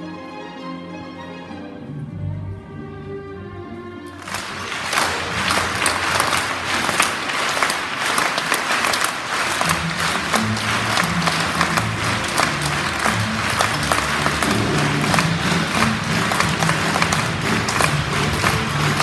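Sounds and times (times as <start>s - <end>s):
audience applauding: 4.1s - 19.0s
low bass music: 9.8s - 19.0s.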